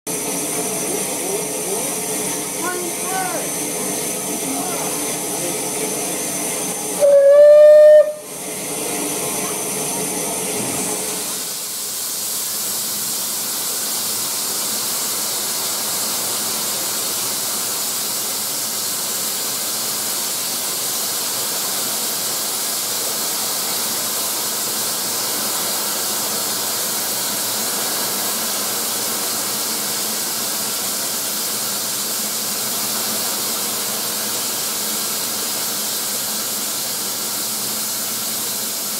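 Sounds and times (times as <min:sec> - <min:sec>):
steam hissing: 0:00.1 - 0:38.9
steam whistle blast: 0:07.0 - 0:08.3.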